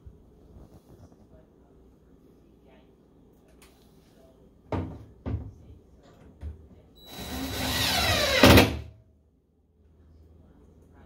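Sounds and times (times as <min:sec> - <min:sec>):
cordless drill driving a screw: 0:07.0 - 0:08.6.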